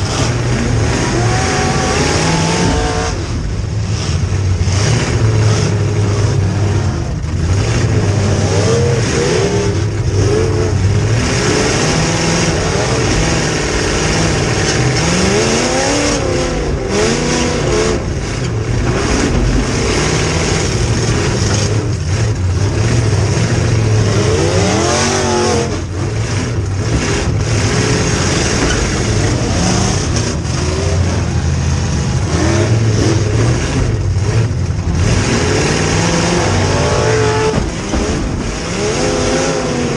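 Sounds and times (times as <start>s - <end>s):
car engine revving: 0.0s - 39.9s.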